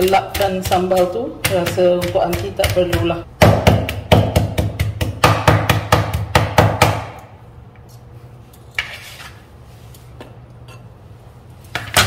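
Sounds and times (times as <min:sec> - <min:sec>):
knife chopping on plastic board: 0:00.0 - 0:07.2.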